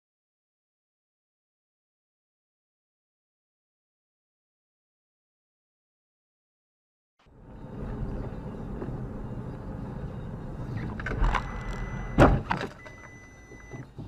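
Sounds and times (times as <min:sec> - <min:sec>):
car engine and road noise: 0:07.2 - 0:14.0
high electronic beep: 0:07.4 - 0:13.9
car collision bang: 0:12.1 - 0:12.8.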